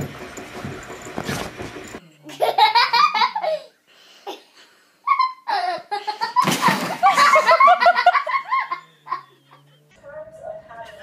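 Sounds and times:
people laughing: 0:06.0 - 0:09.6.

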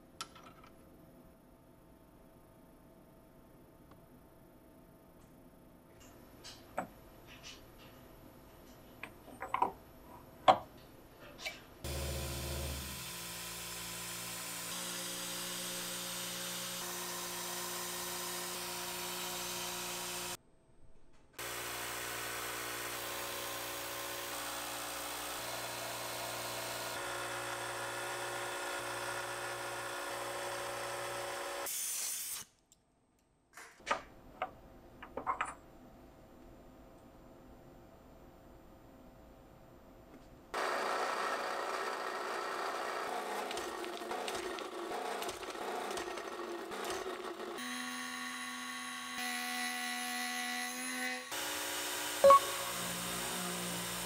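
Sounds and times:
metal blocks knocking on vise: 0:09.0 - 0:09.8.

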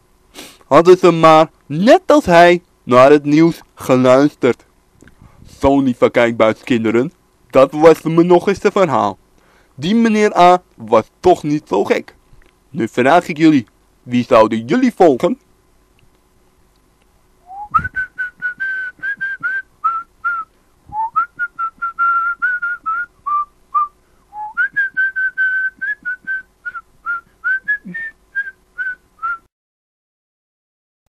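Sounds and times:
person whistling a tune: 0:17.4 - 0:29.5.

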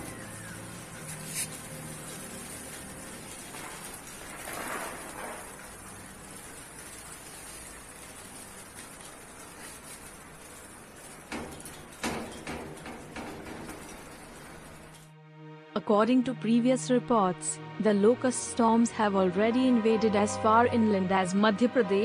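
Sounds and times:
locust swarm rustling hiss: 0:00.0 - 0:15.0.

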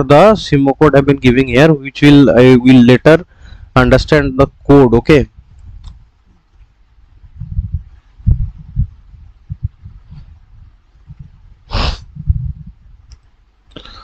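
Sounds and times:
person breathing close to microphone: 0:03.2 - 0:03.8, 0:09.8 - 0:12.7, 0:13.7 - 0:14.0.

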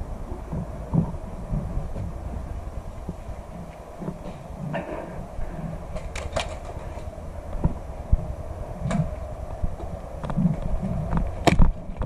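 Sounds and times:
low rumble: 0:00.0 - 0:12.0
sharp clicks and knocks: 0:09.8 - 0:12.0.

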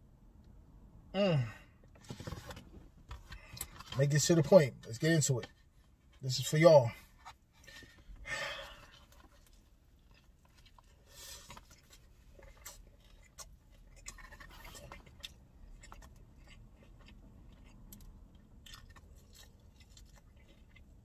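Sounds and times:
chewing with small crunches: 0:02.0 - 0:21.0
biting into sandwich: 0:08.7 - 0:21.0.

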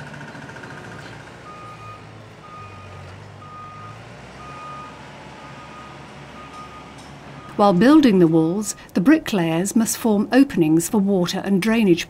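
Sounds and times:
construction site noise: 0:00.0 - 0:12.0
low engine rumble: 0:00.0 - 0:12.0
reversing alarm beeping: 0:00.3 - 0:08.9.

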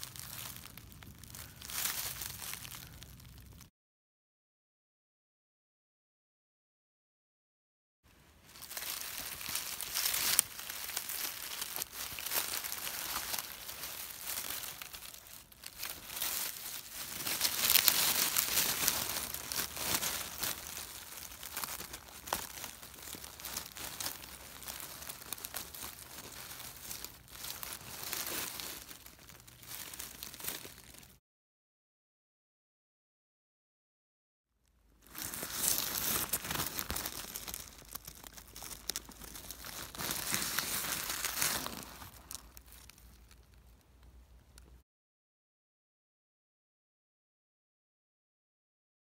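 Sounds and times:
dry leaves crackling: 0:00.0 - 0:03.6, 0:08.2 - 0:31.2, 0:35.0 - 0:43.8.

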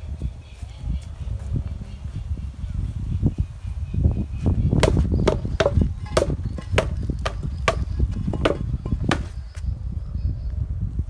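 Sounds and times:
sword whacking rubber tyres: 0:04.8 - 0:09.4.

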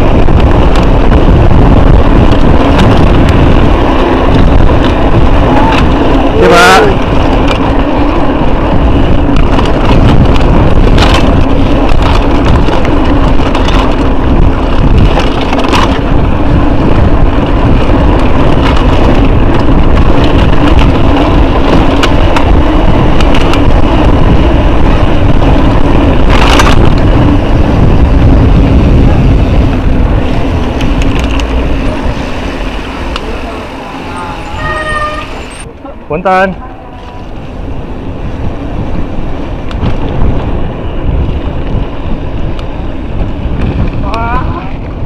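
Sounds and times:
bike rattling over rough ground: 0:00.0 - 0:45.0
wind buffeting microphone: 0:00.0 - 0:45.0.

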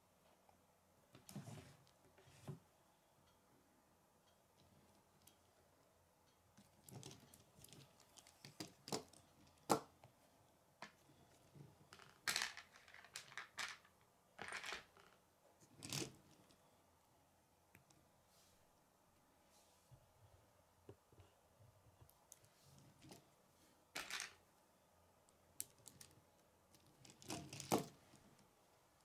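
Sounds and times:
plastic pieces clicking: 0:11.9 - 0:15.2.

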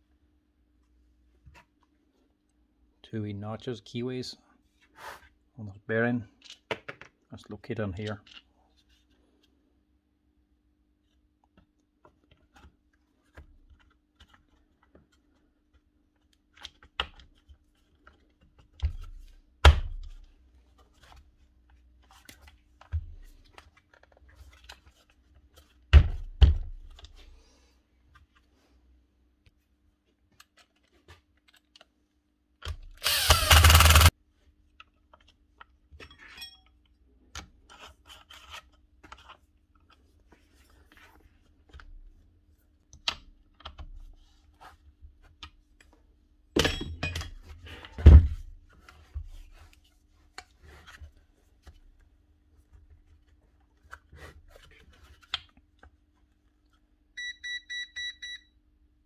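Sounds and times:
power tool bursts: 0:33.0 - 0:34.1.

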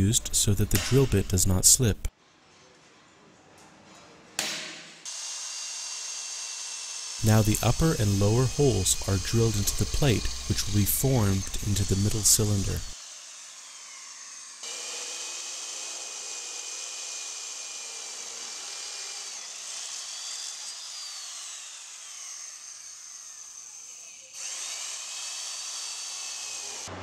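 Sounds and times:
electric drill boring metal: 0:05.1 - 0:27.0.

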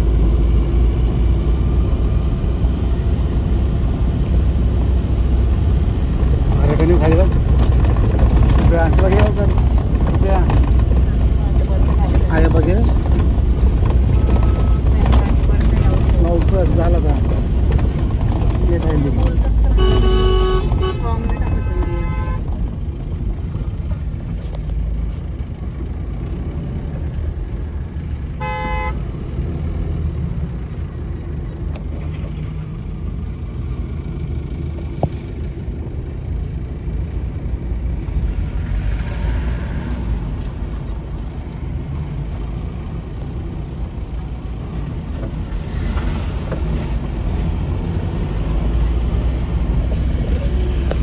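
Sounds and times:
vehicle engine and road noise: 0:00.0 - 0:51.0
vehicle horn honk: 0:19.7 - 0:22.4, 0:28.4 - 0:29.0.

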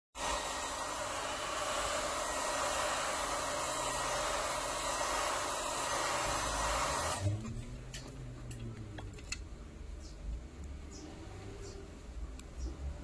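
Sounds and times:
heat gun blowing air: 0:00.2 - 0:07.4.

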